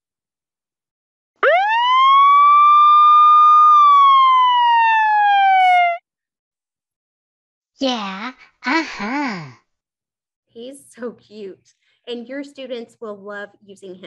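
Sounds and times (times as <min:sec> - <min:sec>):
siren wail sound effect: 0:01.4 - 0:06.0.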